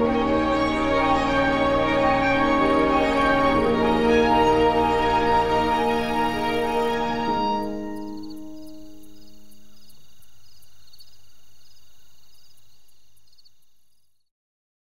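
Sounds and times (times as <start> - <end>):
soft music: 0.0 - 9.9
insects chirping: 0.0 - 14.3.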